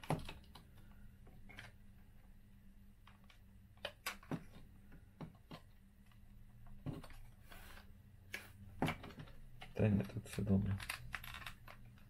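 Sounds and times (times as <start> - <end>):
clicks and knocks of plastic handling: 0.0 - 1.8, 8.8 - 12.0.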